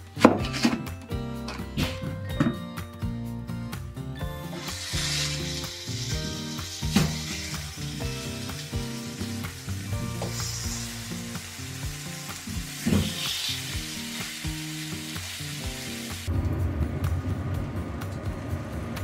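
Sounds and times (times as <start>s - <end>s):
onion sizzling in hot oil: 4.4s - 16.3s.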